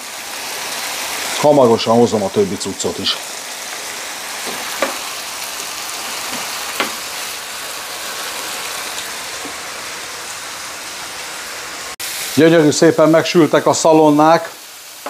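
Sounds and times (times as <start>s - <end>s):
meat sizzling on a griddle: 0.0s - 15.0s
sharp grease pops: 6.3s - 7.0s.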